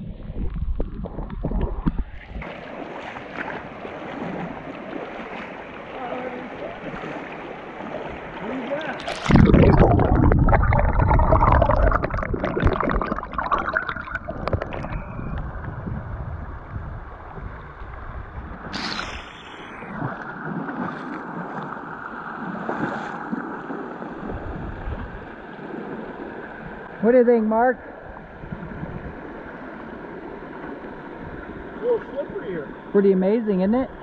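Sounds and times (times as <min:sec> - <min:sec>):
water splashing on microphone: 0:00.0 - 0:26.8.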